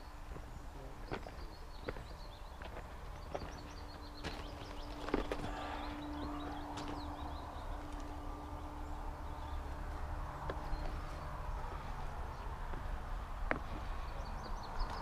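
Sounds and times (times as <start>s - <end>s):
birds chirping faintly: 0.0s - 15.0s
footsteps on gravel: 0.3s - 8.2s, 10.4s - 14.1s
low steady rumble: 3.5s - 15.0s.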